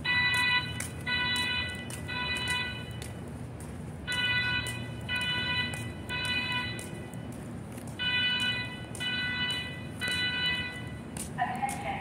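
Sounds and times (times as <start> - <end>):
fire alarm beeps: 0.0 - 3.1, 4.1 - 7.3, 8.0 - 11.1.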